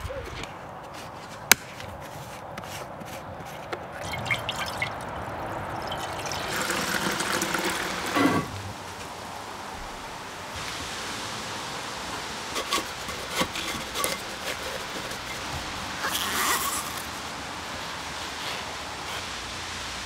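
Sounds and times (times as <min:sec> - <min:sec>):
liquid pouring into metal tank: 0:04.0 - 0:08.5.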